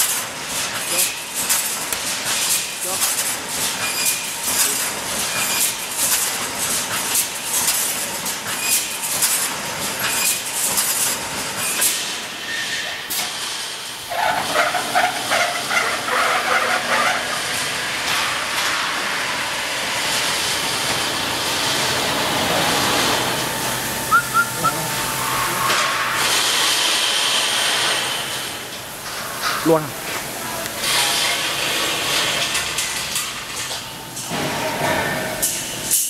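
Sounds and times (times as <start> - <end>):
welding machine sharp strikes: 20.0 - 29.9, 30.8 - 36.0
pulsing squealing mechanical sound: 24.0 - 26.2.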